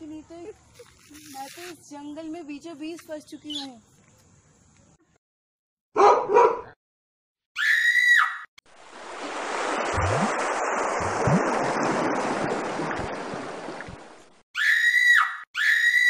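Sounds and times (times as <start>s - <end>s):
brief high scream: 14.6s - 16.0s.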